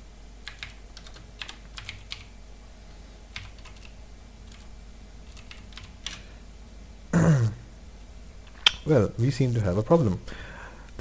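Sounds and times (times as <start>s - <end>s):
computer keyboard keys clicking: 0.4s - 2.3s, 3.3s - 6.2s.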